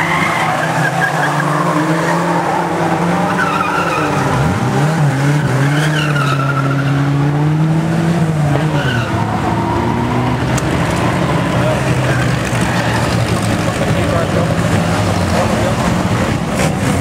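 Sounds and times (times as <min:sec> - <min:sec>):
tyres squealing: 0:00.0 - 0:07.0, 0:08.4 - 0:14.2
racing car engines revving: 0:00.0 - 0:17.0.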